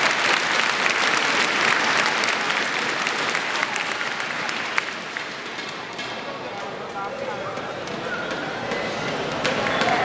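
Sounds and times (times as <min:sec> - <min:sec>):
crowd applauding: 0:00.0 - 0:05.9, 0:09.1 - 0:10.0.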